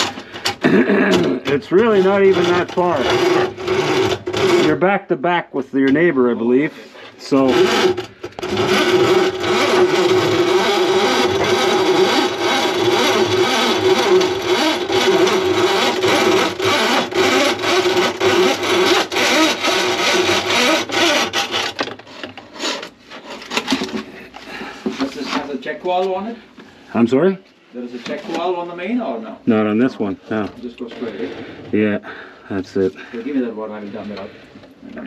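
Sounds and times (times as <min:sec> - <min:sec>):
cable rattling in drain pipe: 0:00.0 - 0:04.8, 0:07.4 - 0:24.1.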